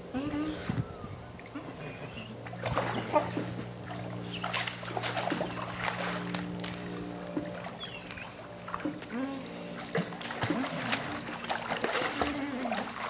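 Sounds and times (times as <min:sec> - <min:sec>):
steady low hum: 0:00.0 - 0:13.0
water splashing: 0:02.4 - 0:13.0.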